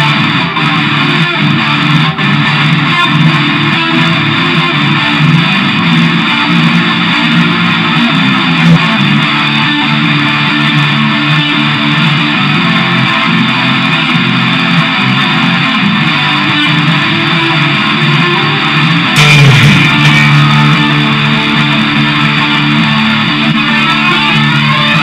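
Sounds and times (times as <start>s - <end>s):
electric guitar: 0.0s - 25.0s
progressive rock instrumental: 0.0s - 25.0s.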